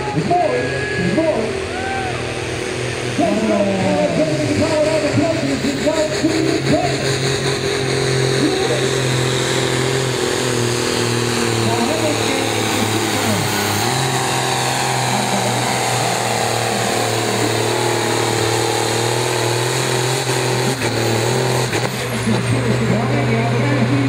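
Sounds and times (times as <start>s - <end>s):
tractor diesel engine at full load: 0.0s - 24.0s.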